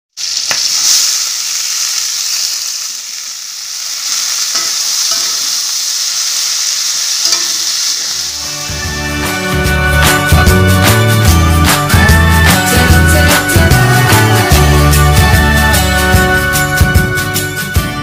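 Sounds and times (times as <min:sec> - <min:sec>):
vegetables sizzling in a wok: 0:00.1 - 0:16.8
music: 0:07.4 - 0:18.0.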